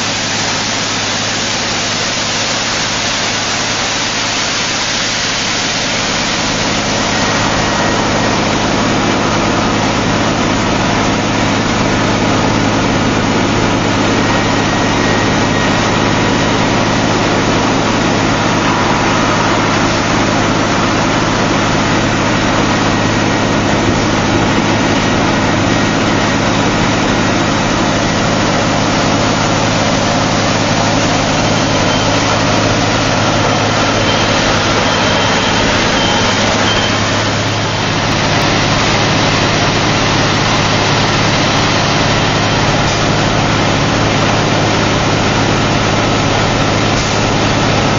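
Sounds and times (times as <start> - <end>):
drill rig engine running: 0.0 - 47.9.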